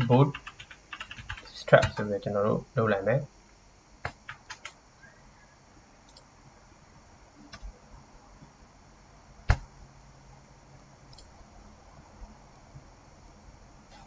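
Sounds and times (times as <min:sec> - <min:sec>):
computer mouse clicks: 0:06.1 - 0:06.3, 0:11.1 - 0:11.3.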